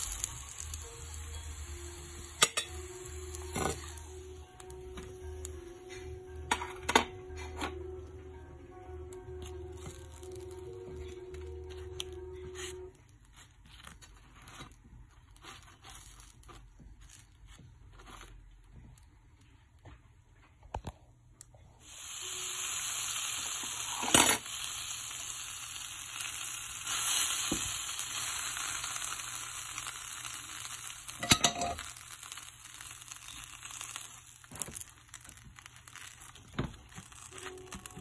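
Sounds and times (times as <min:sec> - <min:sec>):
bread sizzling in oil: 0:00.0 - 0:05.5, 0:21.8 - 0:38.0.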